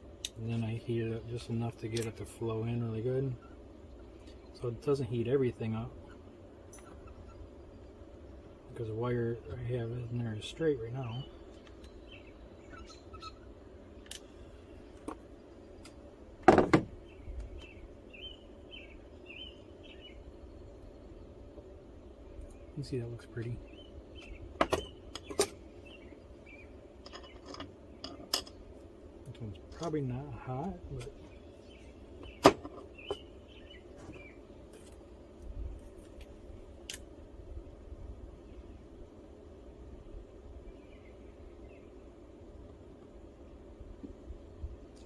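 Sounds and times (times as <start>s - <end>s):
small birds chirping: 0.0s - 45.0s
steady background noise: 0.0s - 45.0s
tools handled on wooden workbench: 27.0s - 28.6s.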